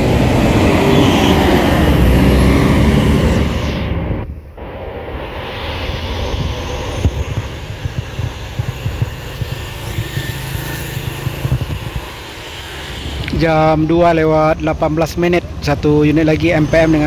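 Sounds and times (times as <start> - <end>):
diesel coach engine rumble: 0.0 - 4.8
cars passing: 0.0 - 17.0.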